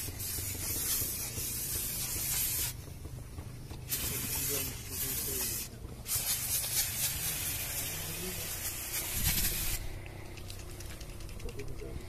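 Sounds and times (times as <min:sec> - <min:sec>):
aerosol can spraying hiss: 0:00.0 - 0:02.8, 0:03.9 - 0:09.8.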